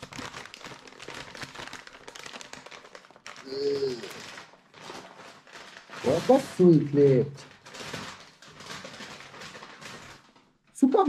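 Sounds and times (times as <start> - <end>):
paper bag rustling and crinkling: 0.0 - 11.0
person humming: 3.4 - 4.2.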